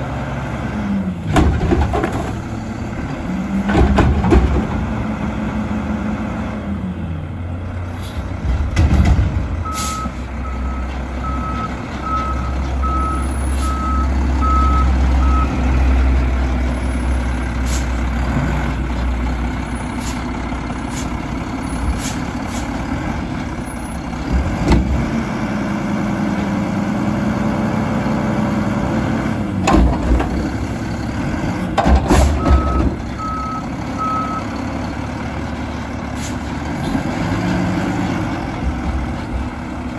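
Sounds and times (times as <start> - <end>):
garbage truck engine running: 0.0 - 39.9
reverse alarm beeping: 9.7 - 15.6.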